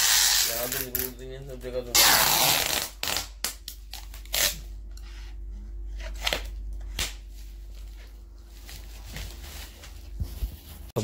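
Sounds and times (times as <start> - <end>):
plastic film crinkling: 7.3 - 11.0.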